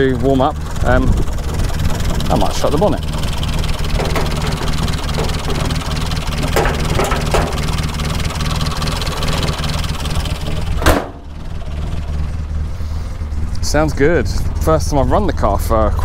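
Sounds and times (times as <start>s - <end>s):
car engine idling: 0.0s - 16.0s
engine knocks: 0.0s - 16.0s
car bonnet slammed shut: 10.7s - 11.3s.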